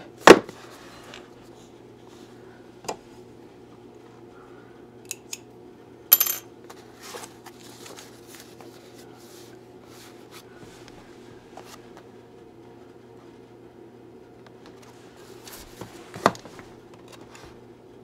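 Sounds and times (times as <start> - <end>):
cardboard rustling and scraping: 14.7 - 17.6.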